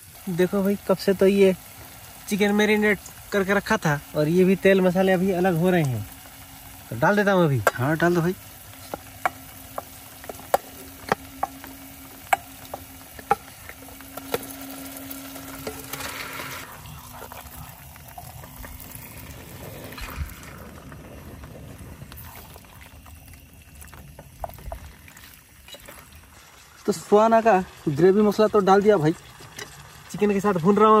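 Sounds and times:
chicken sizzling in oil: 0.0s - 31.0s
low hum: 3.1s - 26.4s.

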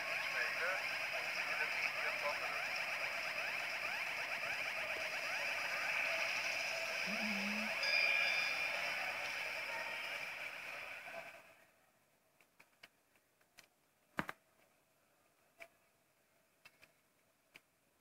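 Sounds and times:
sports broadcast music: 0.0s - 11.6s.

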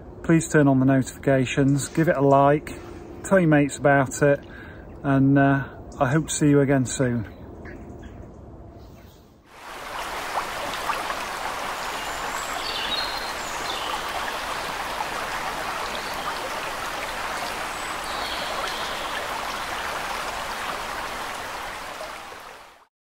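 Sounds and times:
flowing water: 9.5s - 22.9s.

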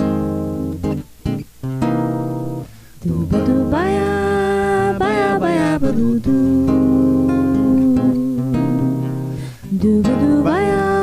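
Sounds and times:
acoustic guitar strumming chords: 0.0s - 11.0s
person singing a wavering note: 3.0s - 9.2s.

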